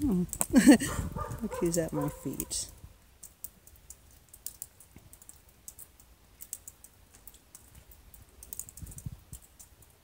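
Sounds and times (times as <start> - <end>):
faint small clicks: 3.2 - 10.0.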